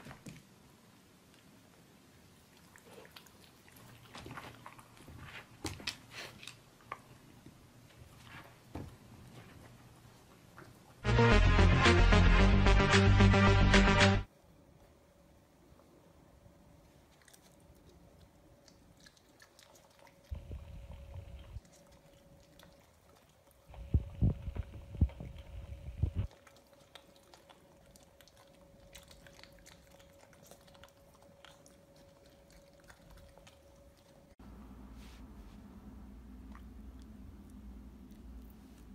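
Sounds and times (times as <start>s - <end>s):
puppy licking and chewing: 2.3s - 7.2s, 16.8s - 34.4s, 36.4s - 38.9s.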